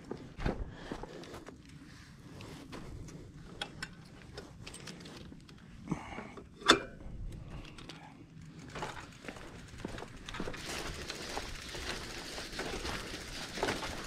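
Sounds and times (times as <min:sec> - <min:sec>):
small clicks and rattles: 0:07.2 - 0:14.0.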